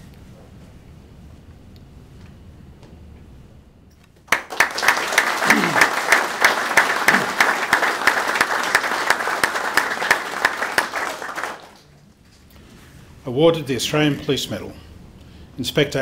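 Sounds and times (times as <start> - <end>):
audience applauding: 4.3 - 12.0.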